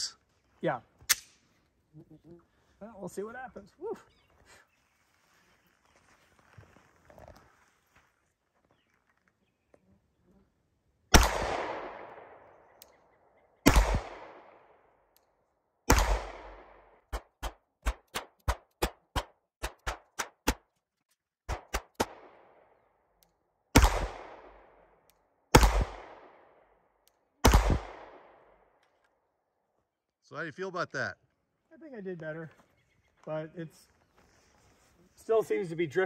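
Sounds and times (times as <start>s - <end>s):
rapid pistol cracks: 1.1s - 1.4s, 11.1s - 13.0s, 13.6s - 15.3s, 15.9s - 20.7s, 21.5s - 29.0s
pistol shots with echo: 11.1s - 12.8s, 13.6s - 14.8s, 15.9s - 19.0s, 21.5s - 22.6s, 23.7s - 24.8s, 25.5s - 26.6s, 27.4s - 28.5s.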